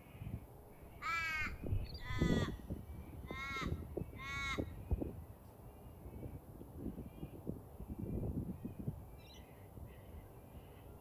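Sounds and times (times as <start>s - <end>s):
crow cawing: 0.9s - 2.6s, 3.3s - 4.7s.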